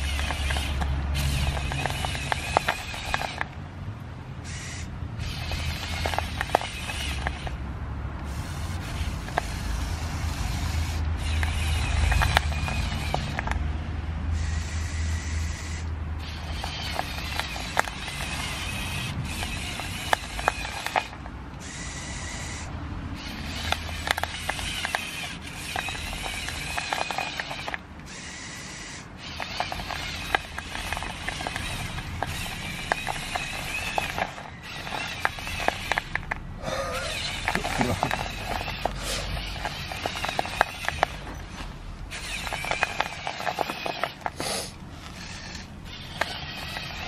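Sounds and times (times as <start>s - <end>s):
electric motors whining: 0.0s - 3.7s, 4.4s - 47.0s.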